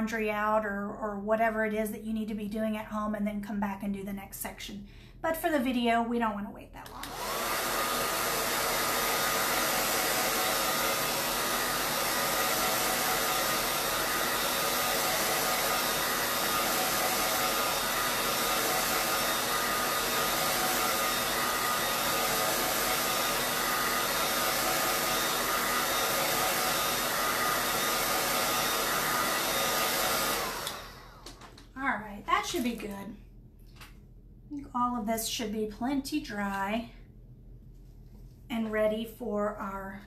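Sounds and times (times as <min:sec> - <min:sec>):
hair dryer blowing air: 0:06.8 - 0:31.7.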